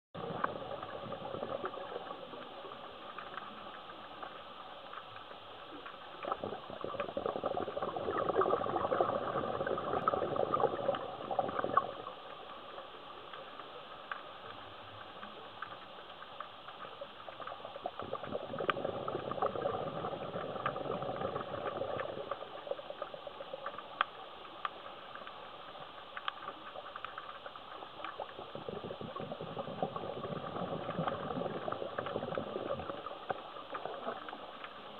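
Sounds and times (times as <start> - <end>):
exhaled bubbles rushing: 0.2 - 2.8, 6.2 - 12.4, 17.4 - 23.5, 28.2 - 34.7.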